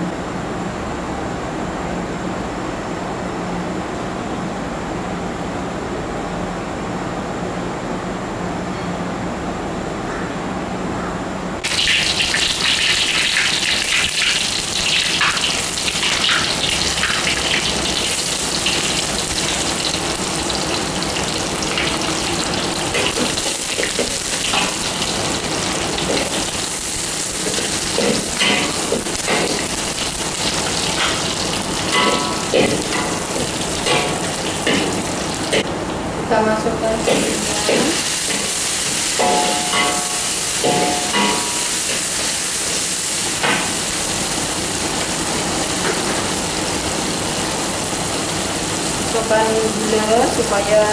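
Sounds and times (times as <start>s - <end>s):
hot oil sizzling in a wok: 11.6s - 35.9s, 36.7s - 50.9s.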